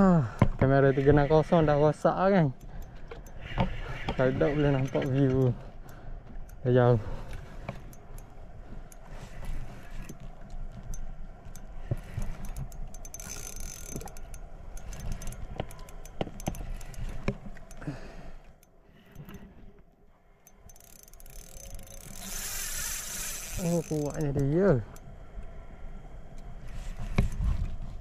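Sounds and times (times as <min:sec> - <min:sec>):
mechanical clicks and rattles: 0:10.8 - 0:17.8, 0:20.4 - 0:25.1.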